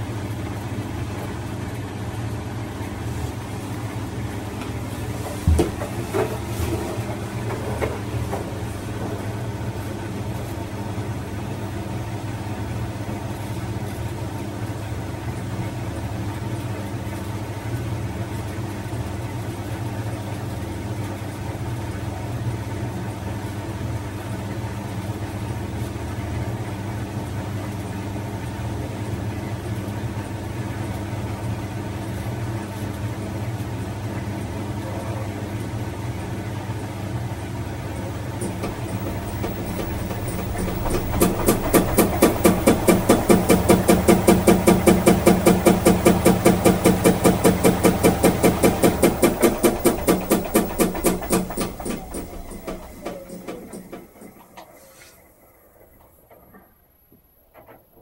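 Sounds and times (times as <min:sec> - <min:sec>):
washing machine hum: 0:00.0 - 0:58.0
sharp knocks: 0:05.4 - 0:08.5, 0:38.4 - 0:54.6.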